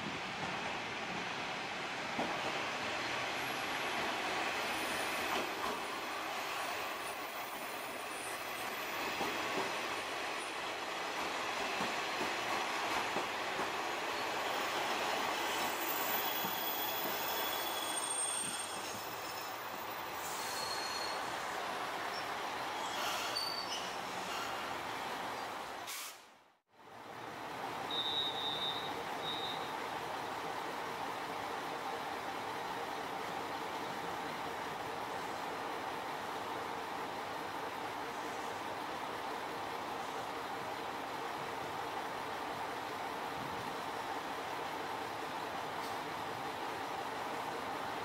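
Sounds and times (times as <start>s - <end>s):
high-pitched wheel squeal: 15.6s - 19.6s, 20.2s - 21.3s, 22.8s - 24.6s.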